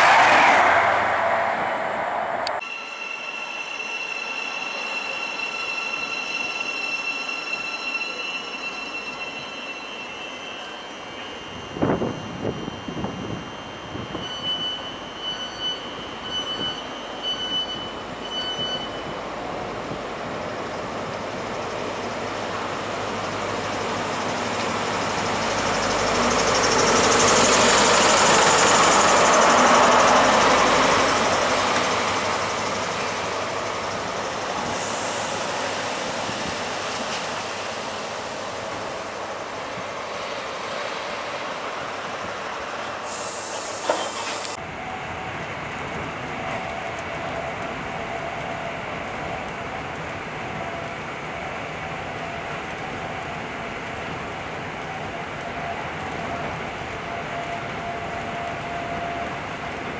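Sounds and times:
diesel train passing: 0.0 - 59.9
electronic beep: 2.6 - 19.1.

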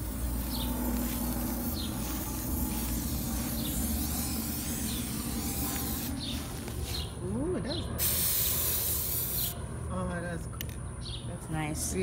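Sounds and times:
spray can hissing: 0.0 - 6.8, 8.0 - 9.6.

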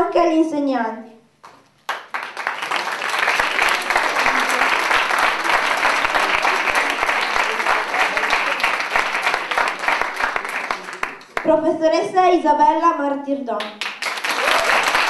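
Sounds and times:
audience applause: 1.9 - 11.5, 13.8 - 15.0.

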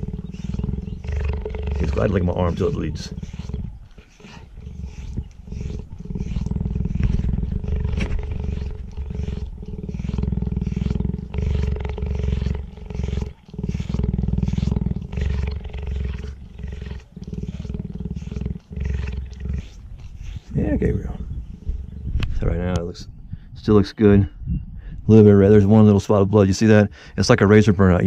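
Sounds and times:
raspy tongue licking skin: 0.0 - 20.5
cheetah purring: 0.0 - 22.8.

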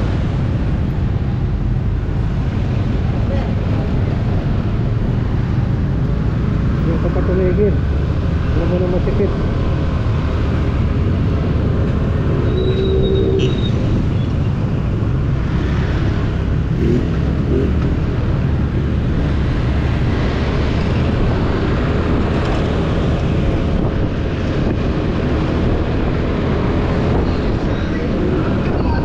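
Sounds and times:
passing traffic: 0.0 - 29.0
wind on microphone: 9.4 - 29.0.

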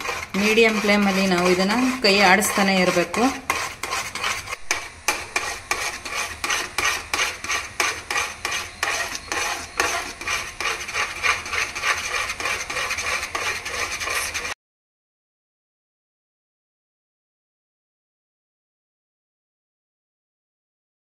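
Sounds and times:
spatula scraping a pan: 0.0 - 14.6.

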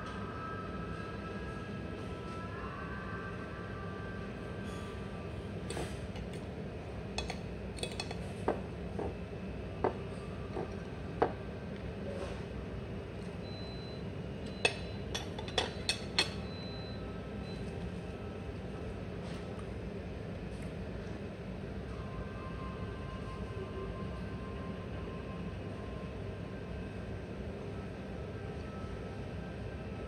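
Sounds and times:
low restaurant hum: 0.0 - 30.0
cutlery clinking on a plate: 7.2 - 8.2.

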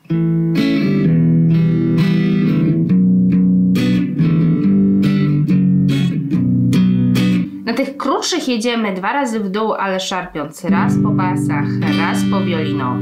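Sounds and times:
electric guitar strumming: 0.0 - 8.2, 10.7 - 13.0.

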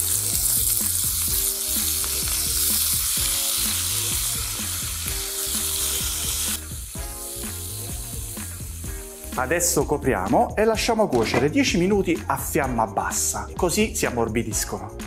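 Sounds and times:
wet greens sizzling in hot oil: 0.0 - 9.4.

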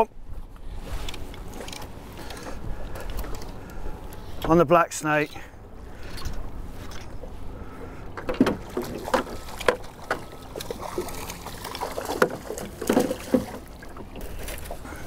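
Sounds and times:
low wind rumble: 0.0 - 15.0.

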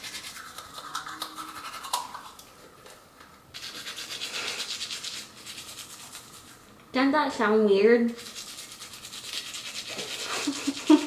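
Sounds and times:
electric toothbrush buzzing: 0.0 - 2.3, 3.6 - 6.5, 8.1 - 11.0.

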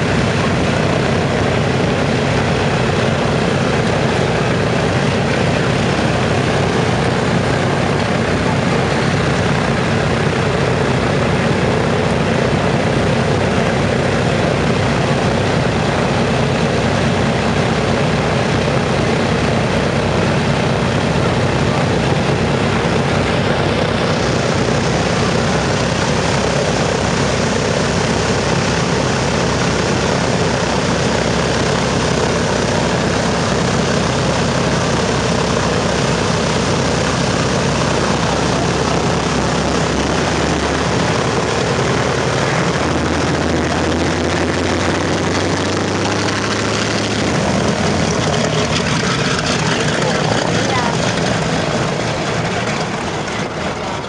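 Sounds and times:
propeller plane engines running: 0.0 - 54.0.

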